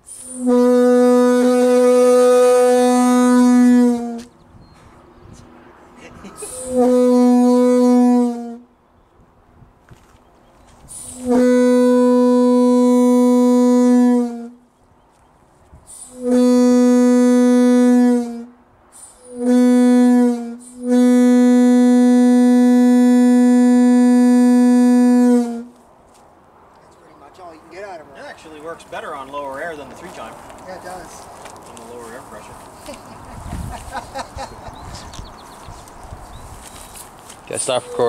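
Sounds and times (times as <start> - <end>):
air horn blasts: 0.1 - 4.3, 6.4 - 8.7, 10.9 - 14.6, 16.0 - 25.8.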